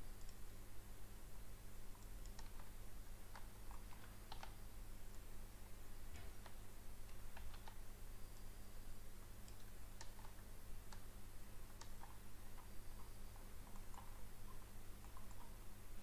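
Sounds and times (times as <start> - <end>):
low steady hum: 0.0 - 16.0
computer mouse clicks: 0.2 - 0.4, 1.9 - 5.2, 6.1 - 8.5, 9.4 - 15.6
keyboard clicks: 1.9 - 5.2, 6.2 - 7.8, 9.4 - 11.1, 11.7 - 15.6.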